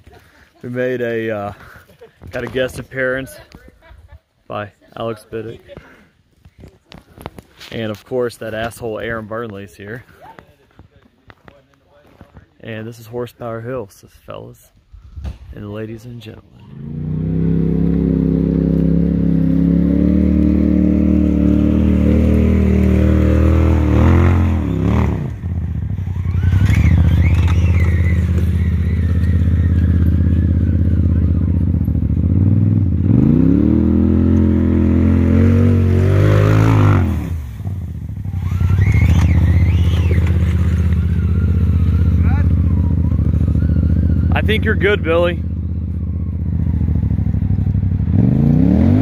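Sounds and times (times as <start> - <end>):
off-road vehicle engine revving: 16.5 - 49.0.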